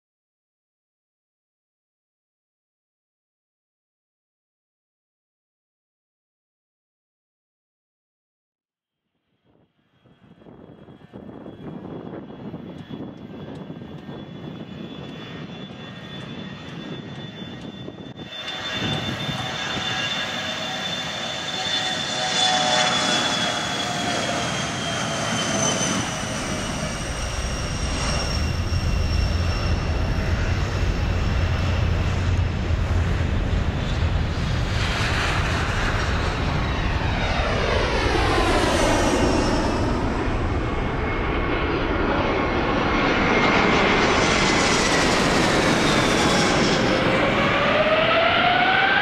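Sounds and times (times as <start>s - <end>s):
deep rumble: 26.3s - 48.9s.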